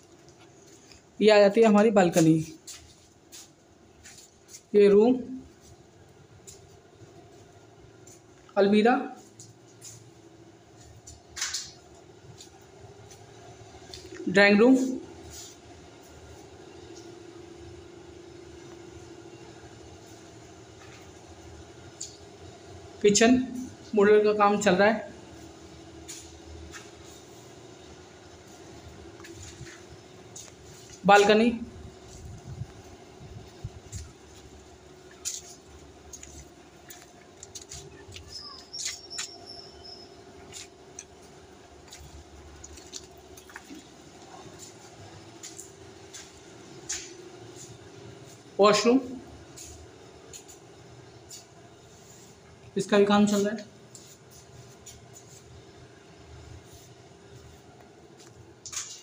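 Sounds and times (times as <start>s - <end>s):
steady hum: 0.0s - 59.0s.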